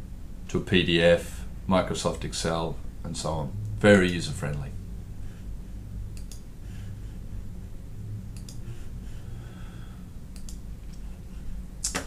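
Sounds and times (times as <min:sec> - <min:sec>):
steady low hum: 0:00.0 - 0:12.0
computer mouse clicks: 0:06.2 - 0:06.4, 0:08.4 - 0:08.6, 0:10.3 - 0:11.0.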